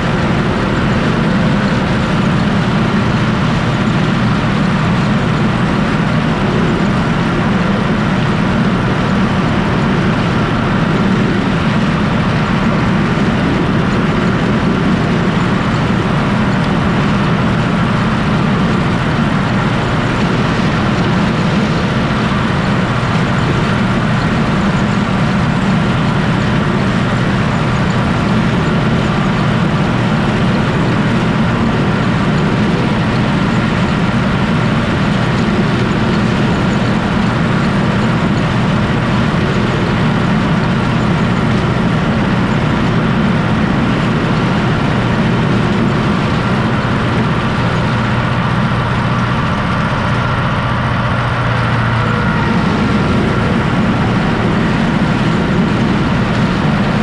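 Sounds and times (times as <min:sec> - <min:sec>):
corn picker running: 0:00.0 - 0:57.0
tractor diesel engine running: 0:00.0 - 0:57.0.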